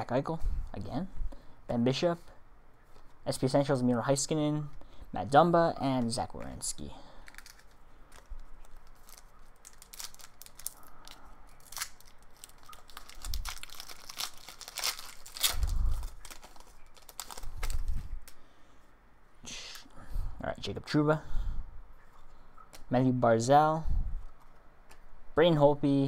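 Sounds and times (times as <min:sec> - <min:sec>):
wrapper tearing and crinkling: 0:07.2 - 0:18.4.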